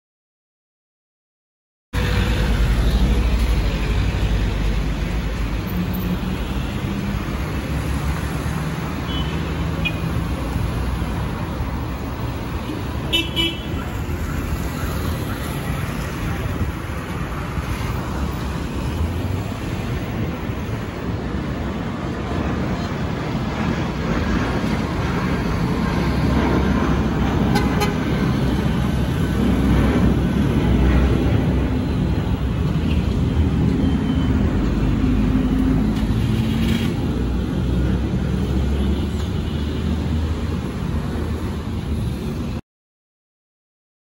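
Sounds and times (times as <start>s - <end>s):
jet airliner passing overhead: 10.1s - 38.8s.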